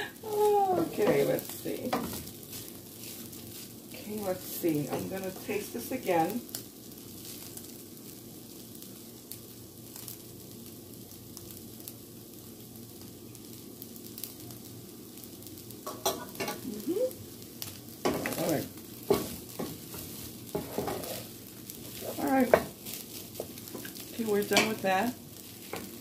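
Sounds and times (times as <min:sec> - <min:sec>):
rice sizzling in a frying pan: 0:00.0 - 0:26.0
wooden spatula scraping pan: 0:18.1 - 0:25.0.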